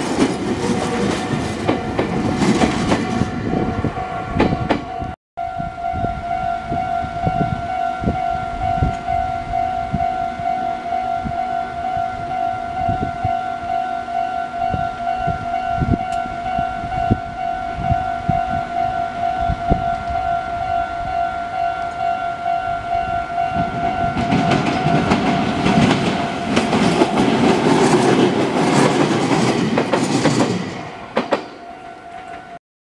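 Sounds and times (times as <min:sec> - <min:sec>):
train wheels clattering over rail joints: 0:00.0 - 0:03.3, 0:24.1 - 0:31.6
electric train rumbling past: 0:00.0 - 0:32.6
level-crossing alarm ringing: 0:00.8 - 0:28.8.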